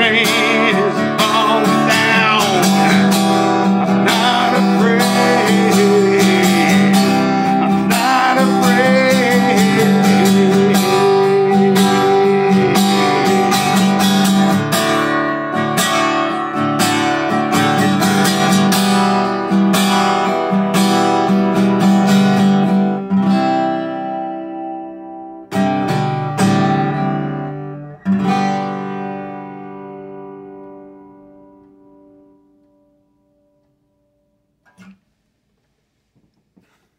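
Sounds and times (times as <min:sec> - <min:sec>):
man singing: 0:00.0 - 0:14.5
acoustic guitar strumming: 0:00.0 - 0:36.9.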